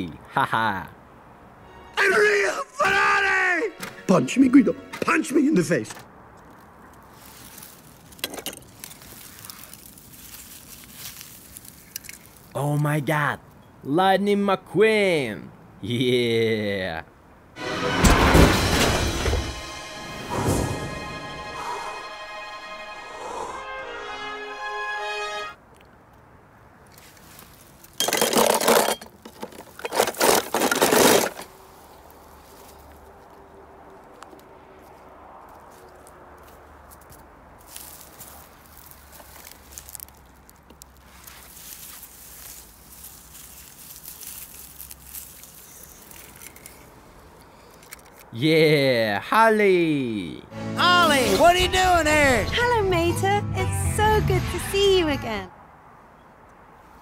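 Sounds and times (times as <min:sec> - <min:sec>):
faint outdoor hiss: 0:00.0 - 0:17.6, 0:19.6 - 0:57.0
hand rustling through grass: 0:06.4 - 0:12.5, 0:26.9 - 0:28.0, 0:35.5 - 0:47.0
toy cars clattering in plastic tub: 0:28.0 - 0:31.5.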